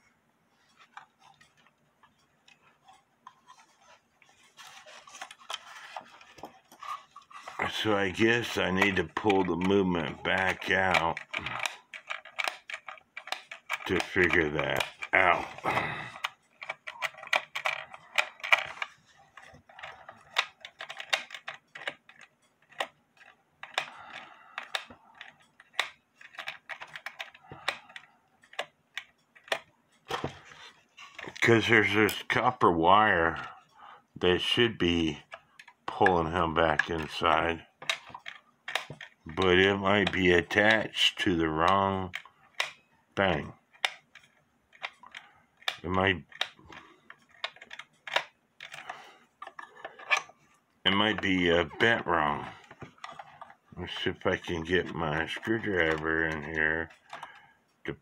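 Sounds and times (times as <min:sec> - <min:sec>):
small clicks on wooden clock case: 0:08.6 - 0:31.5, 0:41.6 - 0:50.4.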